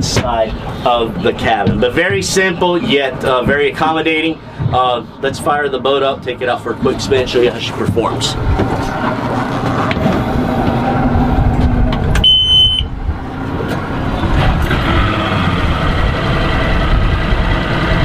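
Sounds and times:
outboard motor idling: 0:06.5 - 0:18.0
short high beep: 0:12.2 - 0:12.9.

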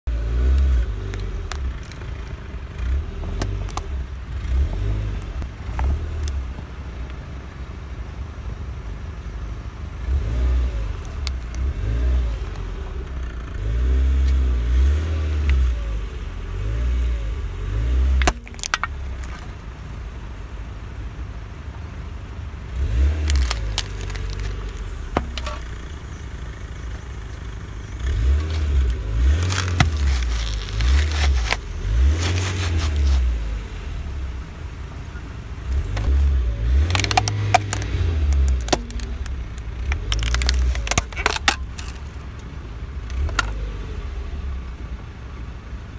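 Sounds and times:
car engine at low revs: 0:00.0 - 0:45.9
plastic objects cracking under wheel: 0:01.0 - 0:02.4, 0:03.2 - 0:03.9, 0:11.0 - 0:11.7, 0:18.2 - 0:19.6, 0:23.2 - 0:25.8, 0:28.1 - 0:33.3, 0:35.7 - 0:43.6
tyre crunching over snow: 0:28.1 - 0:33.4.

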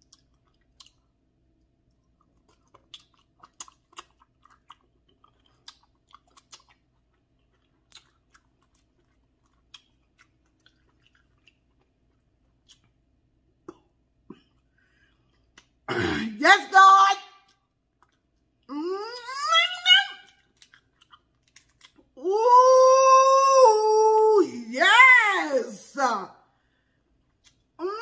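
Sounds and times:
close chewing and mouth smacks: 0:00.0 - 0:15.9, 0:17.4 - 0:19.2, 0:20.1 - 0:22.2, 0:26.9 - 0:27.8.

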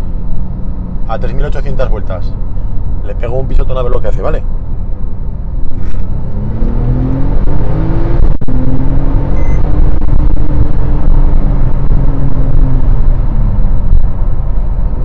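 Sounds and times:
car engine revving at full throttle: 0:05.2 - 0:15.0.

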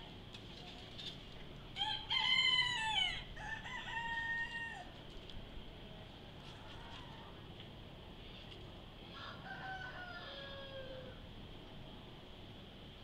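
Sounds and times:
rooster crowing: 0:01.8 - 0:04.9, 0:09.1 - 0:11.2.

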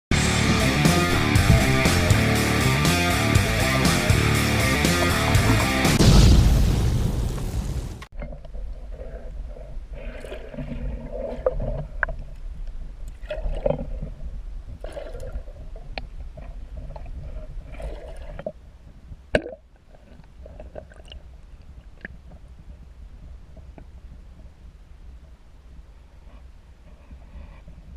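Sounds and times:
muffled underwater sloshing: 0:00.9 - 0:02.6, 0:03.4 - 0:06.0, 0:08.2 - 0:25.6.

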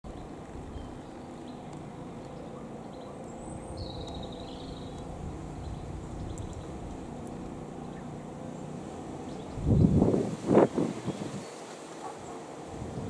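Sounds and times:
low outdoor rumble: 0:00.1 - 0:11.2.

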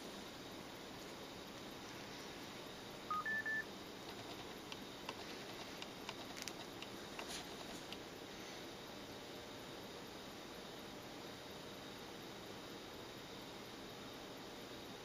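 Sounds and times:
phone keypad beeps: 0:03.1 - 0:03.6.

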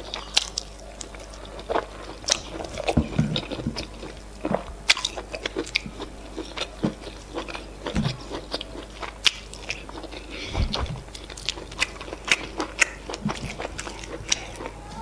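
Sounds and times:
wet chewing: 0:00.0 - 0:15.0
soft low thuds: 0:10.5 - 0:11.2.

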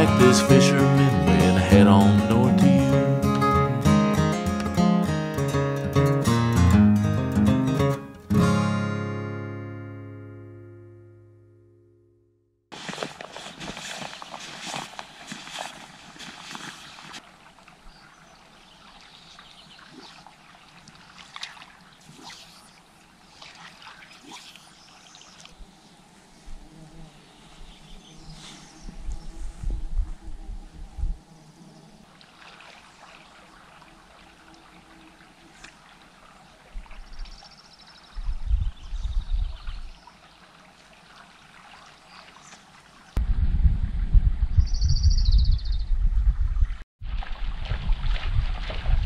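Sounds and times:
footsteps on wet sand: 0:12.7 - 0:17.9
river water lapping at shore: 0:12.7 - 0:26.2, 0:31.8 - 0:38.3, 0:39.5 - 0:43.2, 0:47.0 - 0:49.0
wind rumbling on microphone: 0:28.8 - 0:31.3, 0:36.7 - 0:40.0, 0:43.2 - 0:49.0.

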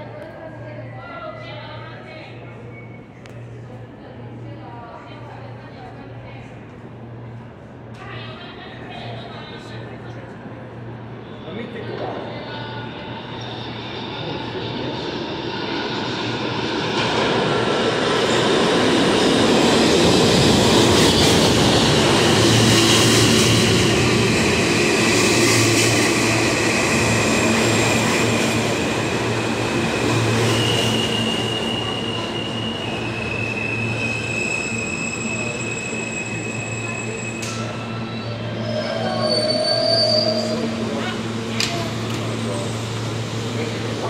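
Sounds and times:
subway train rumbling and rattling: 0:00.0 - 0:44.0
train brakes squealing: 0:18.2 - 0:43.0.

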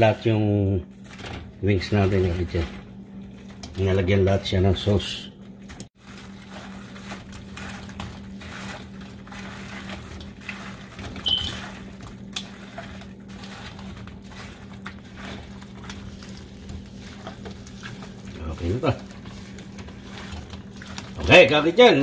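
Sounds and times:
spatula scraping sauce in a wok: 0:06.0 - 0:22.0
high squeak: 0:11.2 - 0:11.8.

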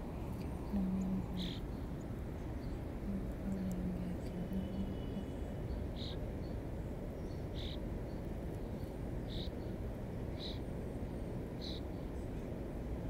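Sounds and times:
low background rumble: 0:00.0 - 0:13.0
bird chip calls: 0:00.6 - 0:01.8, 0:05.9 - 0:06.2, 0:07.3 - 0:07.8, 0:09.2 - 0:09.7, 0:10.3 - 0:10.6, 0:11.6 - 0:11.8.

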